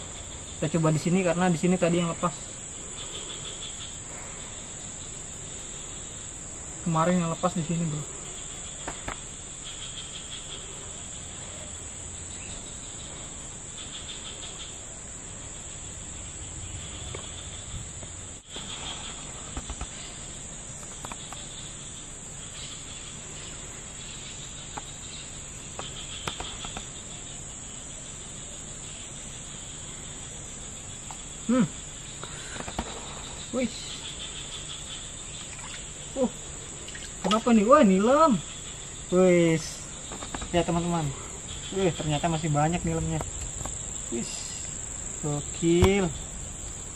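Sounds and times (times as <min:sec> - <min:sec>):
insects droning: 0:00.0 - 0:46.9
high pulsing chirps: 0:33.2 - 0:46.9.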